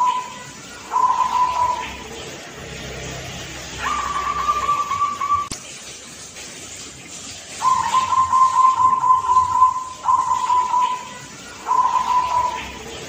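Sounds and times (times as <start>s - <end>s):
dove cooing: 0.0s - 2.2s, 3.8s - 5.5s, 7.6s - 13.0s.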